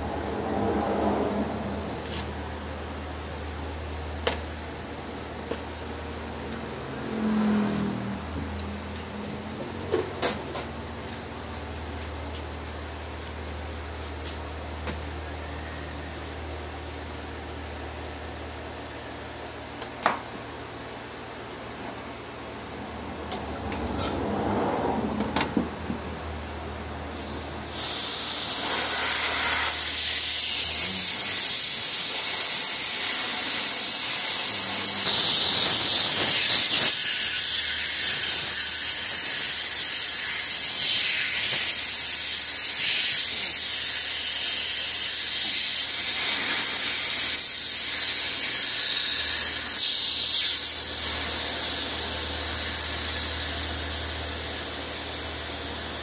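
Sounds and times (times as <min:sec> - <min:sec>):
gas hissing through hoses: 0:27.1 - 0:56.0.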